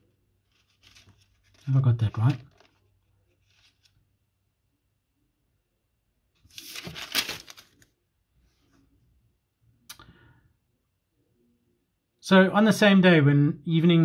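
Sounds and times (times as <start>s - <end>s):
paper pages rustling: 0.0s - 4.0s, 6.4s - 7.9s.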